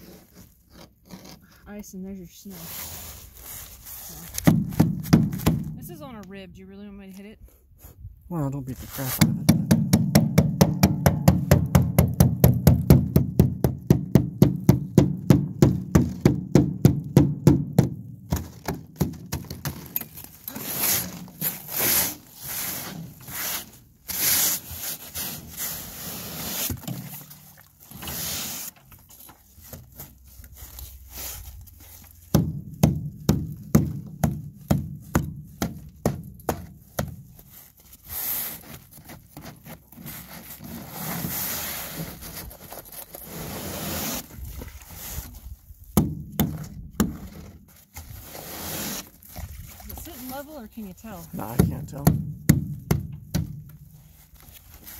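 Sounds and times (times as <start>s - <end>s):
scraping of loosened ice: 0.0s - 4.5s, 19.7s - 32.2s, 37.5s - 45.6s, 47.1s - 51.2s
tool knocking on ice: 9.2s - 19.8s.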